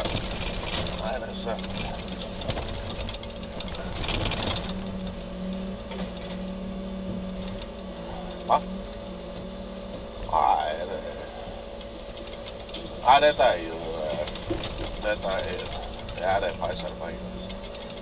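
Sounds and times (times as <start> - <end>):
metal rattling and clattering: 0.0 - 6.6, 12.0 - 18.0
crane engine and hydraulics humming: 0.0 - 18.0.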